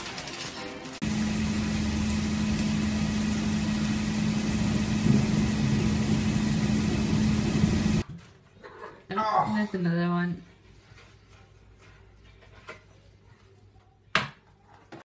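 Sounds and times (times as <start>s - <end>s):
mechanical hum: 0.0s - 8.6s.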